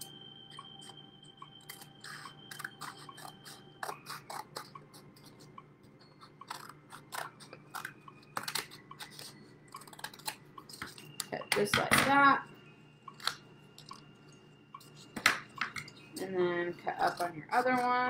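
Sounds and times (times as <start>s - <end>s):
scissors snipping paper plate: 1.7s - 5.5s, 6.2s - 12.1s, 16.9s - 18.0s.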